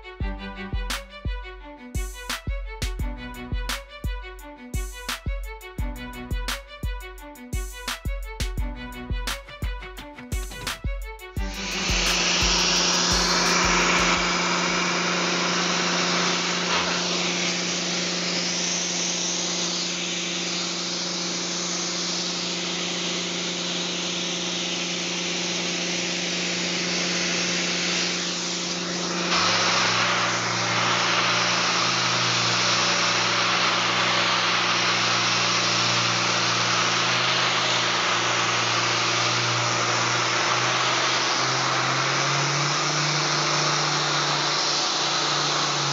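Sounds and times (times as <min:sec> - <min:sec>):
random orbital sander running: 0:00.0 - 0:45.9
workshop machine hum and hiss: 0:10.4 - 0:45.9.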